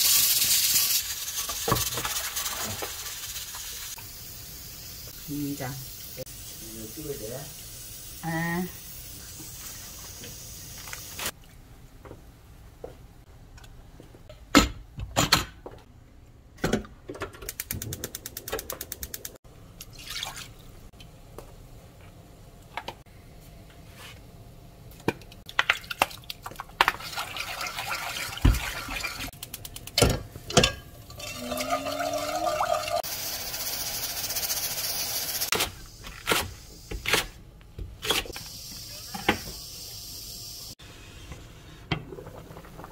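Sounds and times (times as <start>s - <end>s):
water pouring into pan: 19.9s - 20.6s, 26.8s - 29.3s, 31.1s - 35.1s.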